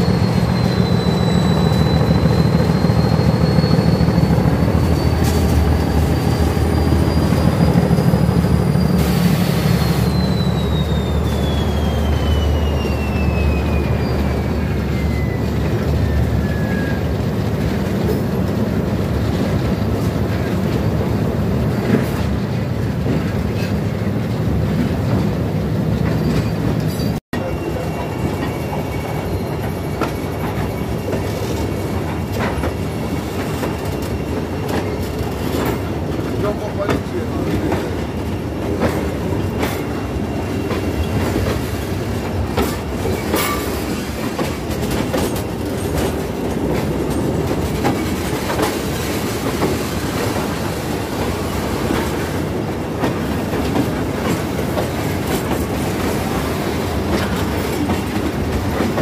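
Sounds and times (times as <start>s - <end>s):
faint wheel squeal: 0.0s - 17.2s, 26.1s - 31.9s, 38.9s - 41.9s
locomotive engine rumbling: 0.0s - 59.0s
wheel and rail noise: 0.0s - 59.0s.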